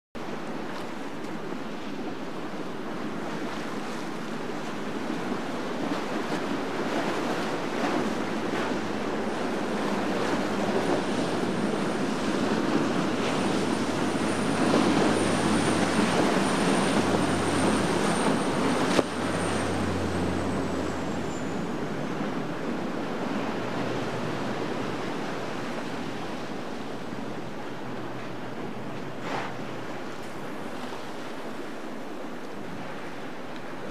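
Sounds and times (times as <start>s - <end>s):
boat spray and wake rushing: 0.2s - 33.9s
diesel engines droning: 10.1s - 25.6s.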